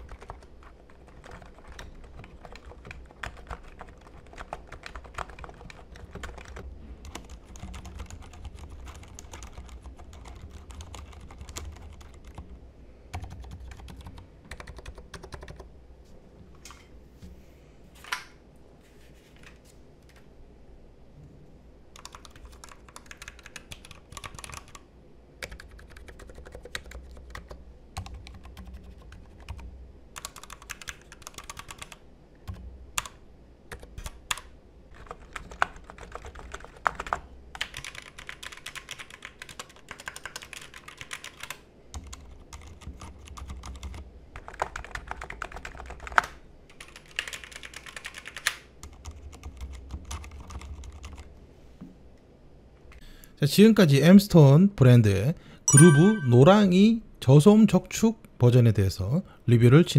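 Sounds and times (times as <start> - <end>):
fast typing on keyboard: 0.0 - 12.5, 13.1 - 15.7, 21.9 - 51.3.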